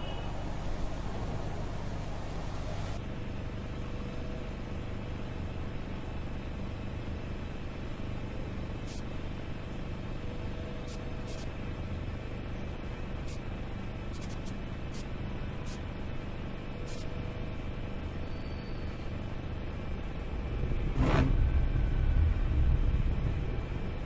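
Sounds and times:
low rumble with hiss: 0:00.0 - 0:03.1, 0:04.0 - 0:24.0
faint hum: 0:00.0 - 0:24.0.

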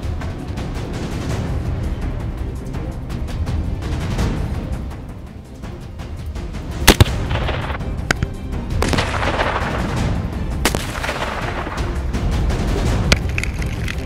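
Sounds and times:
background music: 0:00.0 - 0:14.0
rifle shots: 0:06.9 - 0:12.1.

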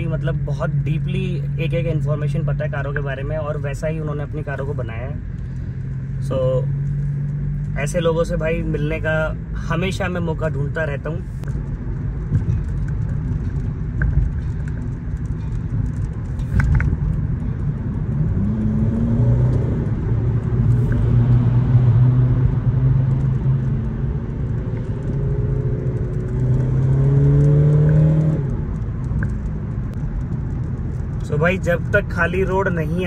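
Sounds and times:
road rumble: 0:00.0 - 0:33.0
car engine accelerating: 0:11.4 - 0:33.0.

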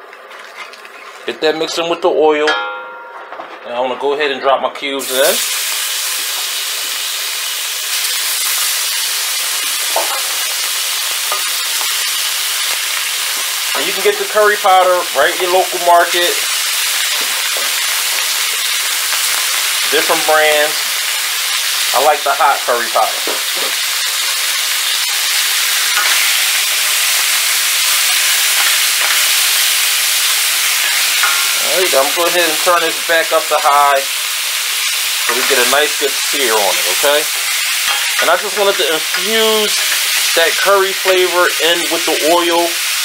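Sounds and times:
meat sizzling in hot oil: 0:05.0 - 0:43.0
wooden spoon scraping a pan: 0:35.3 - 0:41.4.

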